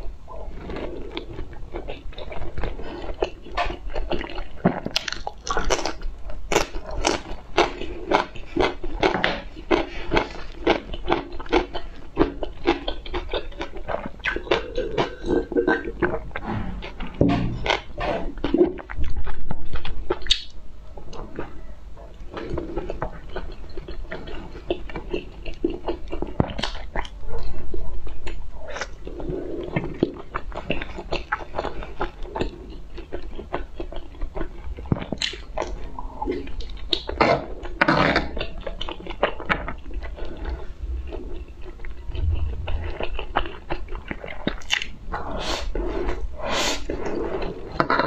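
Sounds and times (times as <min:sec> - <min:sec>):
person chewing and biting: 0:01.1 - 0:20.5.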